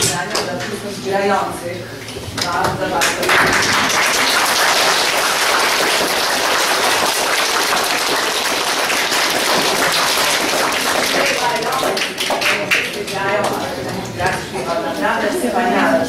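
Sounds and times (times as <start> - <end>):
children applauding: 3.2 - 13.6.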